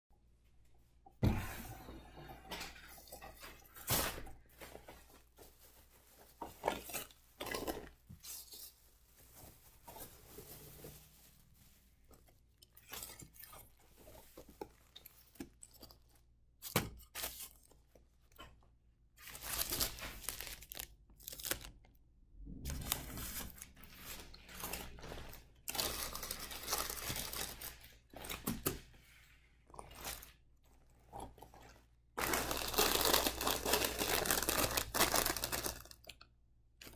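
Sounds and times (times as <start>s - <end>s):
plastic bag rustling: 3.0s - 12.4s, 19.2s - 21.7s, 22.6s - 28.6s, 32.2s - 36.0s
paper wrap crinkling and tearing: 3.5s - 12.2s, 19.2s - 21.8s, 22.7s - 28.6s, 32.2s - 36.0s.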